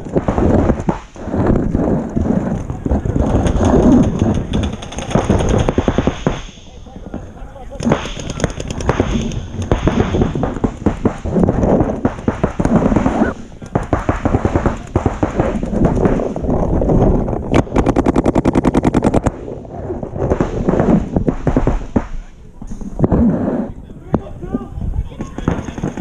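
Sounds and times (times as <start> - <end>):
paintball markers firing: 0.0 - 6.6, 7.8 - 16.8, 17.5 - 19.3, 20.2 - 22.3, 25.1 - 26.0
rapid string of marker shots: 0.0 - 6.8, 7.7 - 16.6, 17.5 - 19.4, 20.2 - 22.3.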